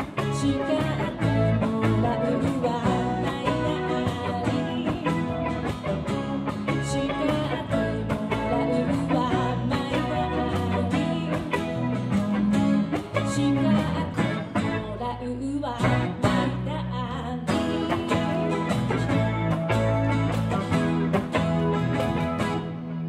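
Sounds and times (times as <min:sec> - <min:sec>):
live song with guitar and beat: 0:00.0 - 0:23.0.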